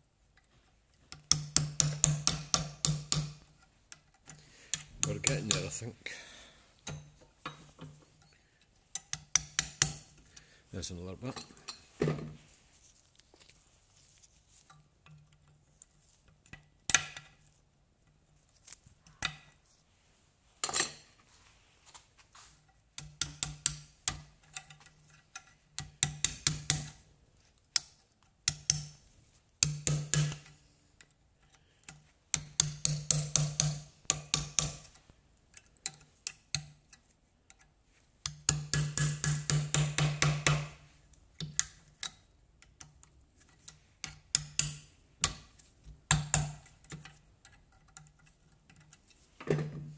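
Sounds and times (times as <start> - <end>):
hammer tapping on metal: 1.2 - 3.4, 4.8 - 5.8, 9.0 - 10.0, 29.6 - 30.5, 32.4 - 35.0, 38.2 - 40.8, 44.0 - 45.4.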